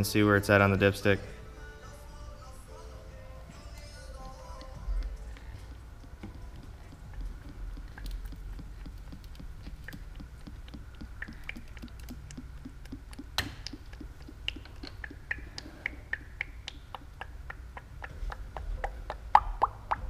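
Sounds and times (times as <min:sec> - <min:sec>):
air bubbling in bottle: 0:06.1 - 0:20.0.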